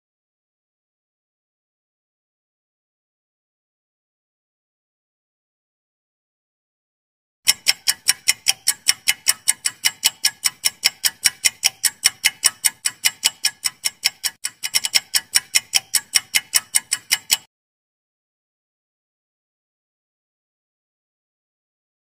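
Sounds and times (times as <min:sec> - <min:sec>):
clock ticking: 0:07.4 - 0:17.5.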